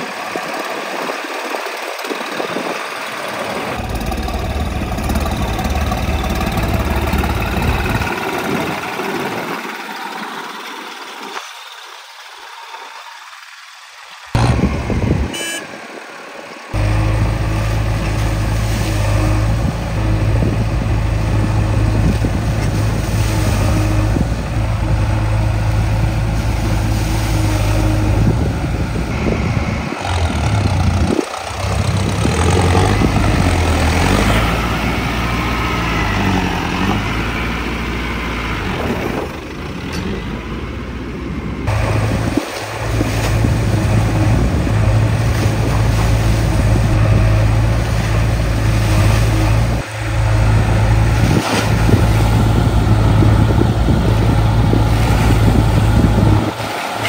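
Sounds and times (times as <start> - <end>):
diesel tractor engine running: 0.0 - 57.0.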